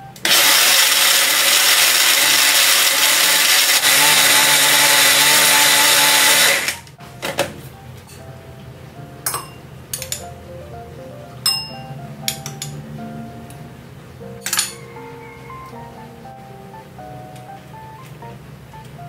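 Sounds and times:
blender motor humming: 0.2 - 6.9.

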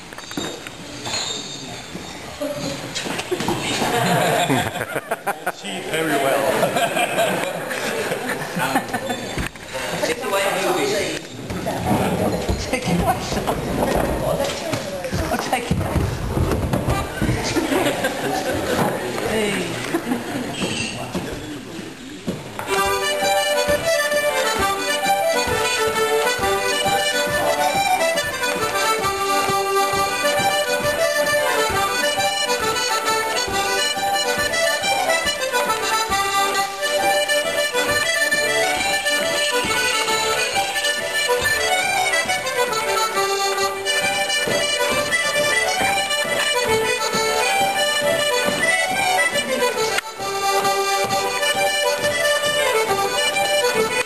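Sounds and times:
squeeze-box and fiddle dance tune: 11.9 - 19.0, 22.4 - 54.0.

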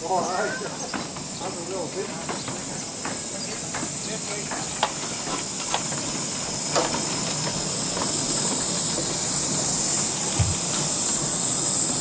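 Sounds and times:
steam locomotive hissing: 0.0 - 12.0
short dull knock: 10.4 - 10.6.

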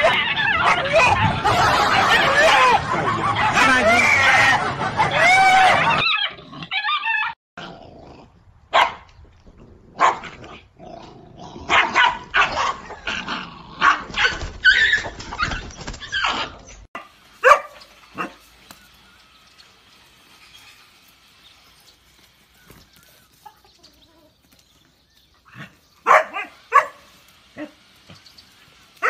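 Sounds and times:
puppy barking and yipping: 0.0 - 2.8, 8.7 - 9.0, 11.7 - 13.1, 13.8 - 18.5, 25.4 - 27.8.

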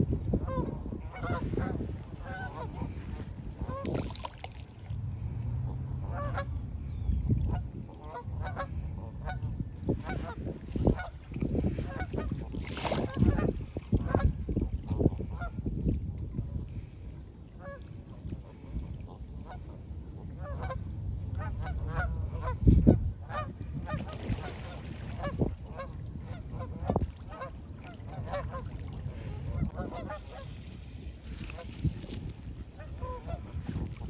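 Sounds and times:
steady low rumble: 0.0 - 12.5, 13.2 - 24.0
geese honking: 0.4 - 3.0.

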